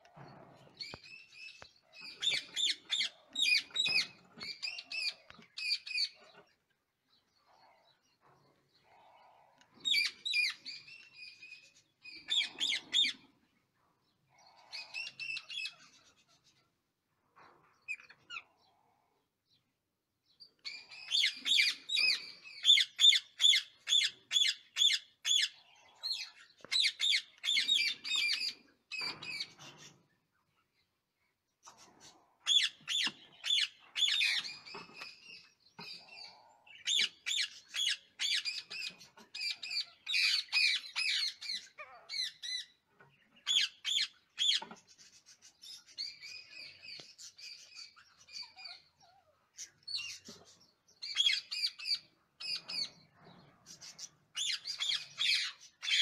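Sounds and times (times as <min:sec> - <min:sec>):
parakeets calling rapidly: 0:02.0 - 0:06.2, 0:31.8 - 0:35.2, 0:51.0 - 0:52.9, 0:53.7 - 0:56.0.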